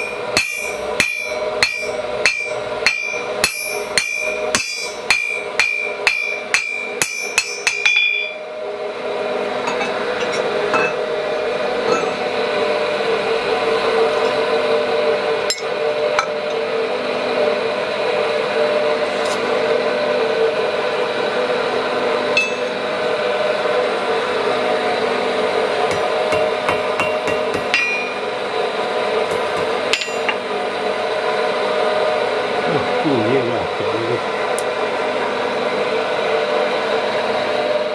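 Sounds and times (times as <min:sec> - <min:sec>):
hammer striking iron on anvil: 0:00.0 - 0:08.4, 0:09.7 - 0:11.0, 0:15.5 - 0:16.3, 0:22.4 - 0:22.7, 0:25.9 - 0:28.2, 0:29.3 - 0:30.4
steady blowing hum: 0:08.4 - 0:37.6.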